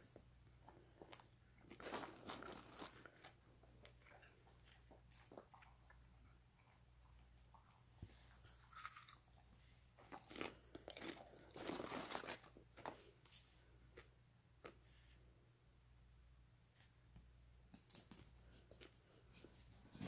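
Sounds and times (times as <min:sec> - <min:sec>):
dog crunching popcorn: 0:00.9 - 0:06.1, 0:08.4 - 0:09.4, 0:10.0 - 0:13.1.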